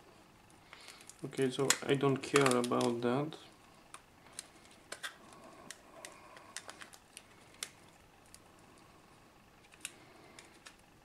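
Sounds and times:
plastic phone parts clicking: 1.0 - 3.0, 3.9 - 7.7.

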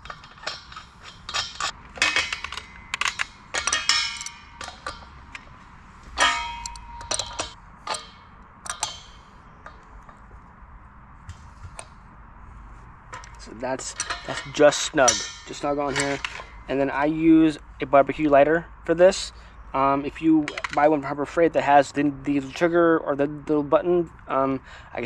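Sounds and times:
wrench clanking on brass fitting: 0.0 - 10.2, 13.1 - 17.6, 19.8 - 21.2.

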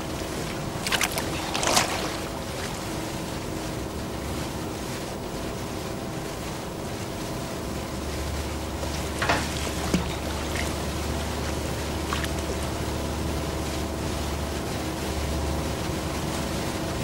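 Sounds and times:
water lapping against canoe: 0.0 - 3.9, 8.0 - 15.8
short splashes: 0.3 - 3.2, 8.8 - 13.0.

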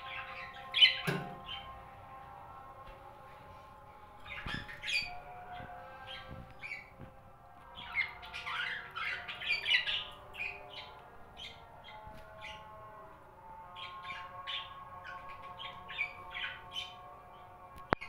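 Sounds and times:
budgerigars chirping and squawking: 0.0 - 1.7, 4.2 - 7.0, 7.8 - 12.7, 13.8 - 17.0.

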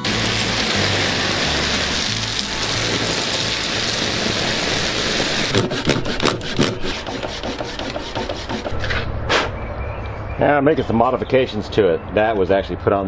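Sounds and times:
water jet hissing: 0.0 - 8.4
hand saw cutting wood: 5.0 - 9.5.

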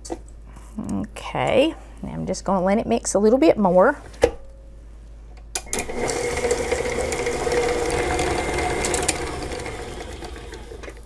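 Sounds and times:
stand mixer motor whirring: 5.7 - 11.0.

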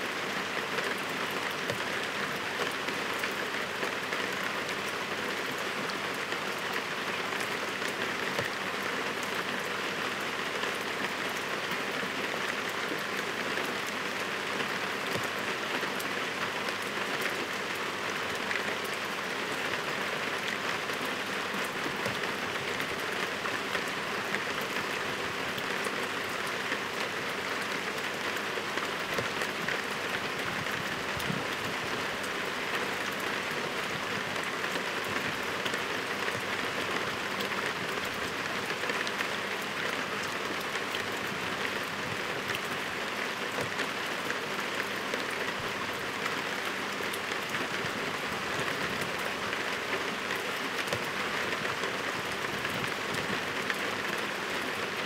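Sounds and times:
heavy rain falling: 0.0 - 55.0.

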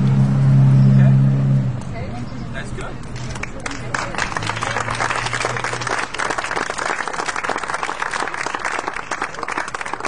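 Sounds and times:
people applauding: 3.2 - 10.0.

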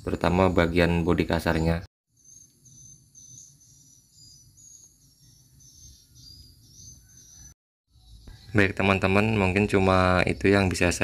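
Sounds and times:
insects chirping: 2.1 - 9.2.

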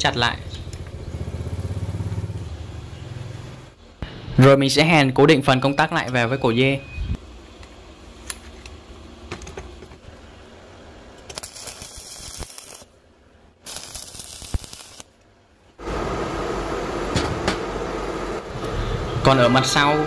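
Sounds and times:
arc welding crackling and hissing: 7.2 - 13.0, 13.6 - 19.3
steady whirring noise: 15.7 - 20.0.

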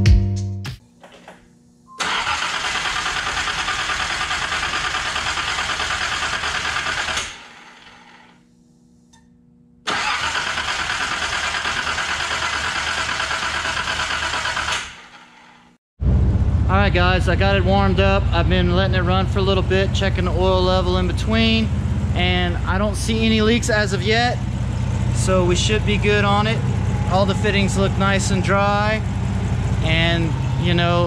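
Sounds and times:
engine cranking on starter: 2.0 - 8.4, 9.9 - 15.7.

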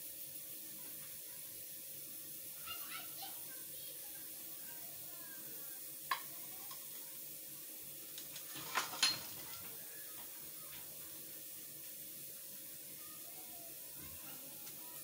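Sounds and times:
dishes clinking: 8.5 - 9.8.

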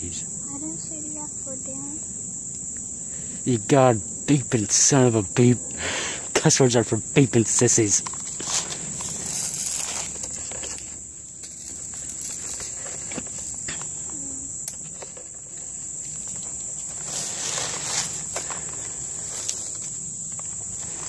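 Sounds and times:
insects droning: 0.0 - 21.0
footsteps through dry leaves: 8.2 - 13.6, 16.1 - 21.0.

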